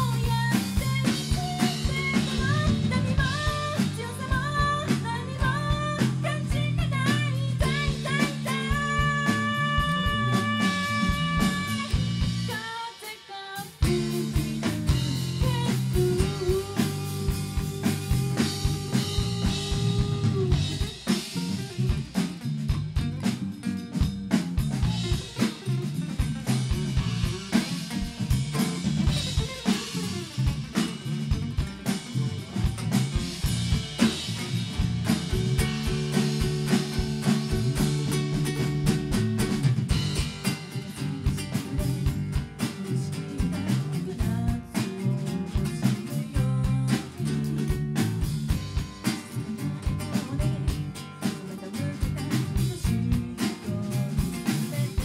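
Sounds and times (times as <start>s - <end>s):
electric bass: 0.0s - 12.6s, 13.8s - 55.0s
woman singing lead: 0.0s - 21.3s, 40.1s - 47.9s, 49.4s - 55.0s
acoustic guitar: 0.0s - 55.0s
drum kit: 0.0s - 55.0s.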